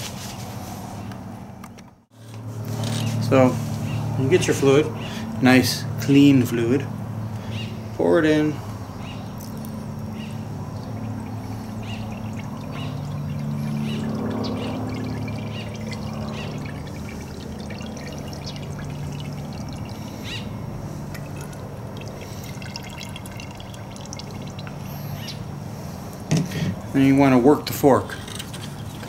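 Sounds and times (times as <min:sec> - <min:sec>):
oil pouring into fork tube: 0:10.7 - 0:20.3, 0:21.0 - 0:25.0.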